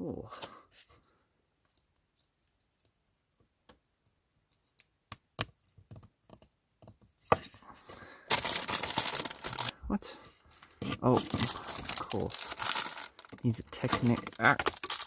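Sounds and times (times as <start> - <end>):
plastic bricks clicking: 12.4 - 15.0.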